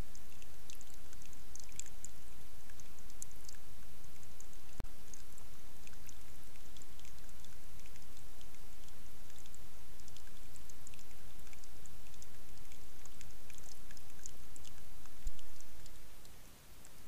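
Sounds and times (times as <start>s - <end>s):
water trickling and dripping: 0.0s - 17.0s.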